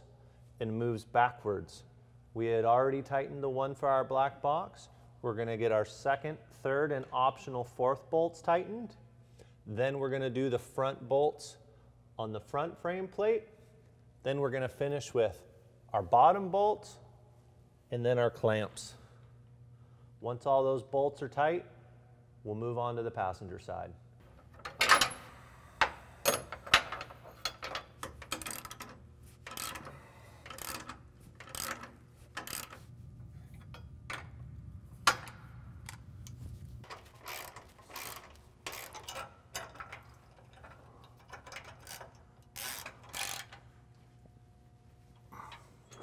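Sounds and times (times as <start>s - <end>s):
ratchet clicking: 25.8s - 32.9s, 36.9s - 43.7s.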